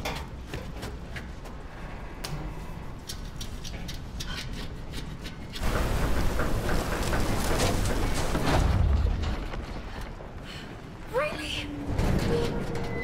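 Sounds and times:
metal creaks and clicks: 11.8 - 13.0.

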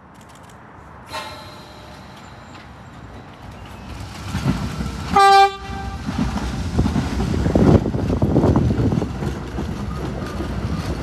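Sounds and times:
subway train rumble: 0.7 - 11.0
train horn blast: 1.1 - 2.4, 5.1 - 6.2.

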